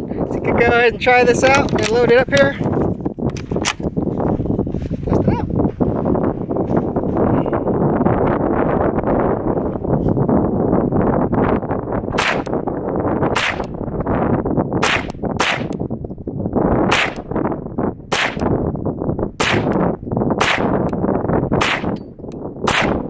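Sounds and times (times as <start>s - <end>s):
wind noise on microphone: 0.0s - 23.0s
gunshots: 12.2s - 12.5s, 13.4s - 13.6s, 14.8s - 15.7s, 16.9s - 17.2s, 18.1s - 18.5s, 19.4s - 19.8s, 20.4s - 20.8s, 21.6s - 22.0s, 22.7s - 23.0s.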